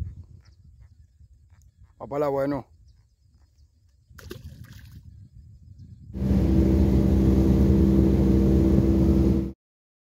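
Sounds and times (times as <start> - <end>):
small splash of fish: 4.2 - 5.0
boat rushing through water: 6.2 - 9.6
motorboat engine running: 6.2 - 9.6.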